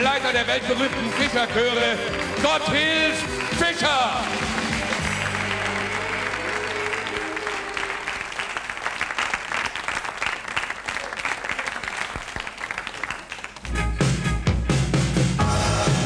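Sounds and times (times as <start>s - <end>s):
audience applauding: 0.0s - 13.8s
loud music with heavy bass beat: 13.8s - 16.0s.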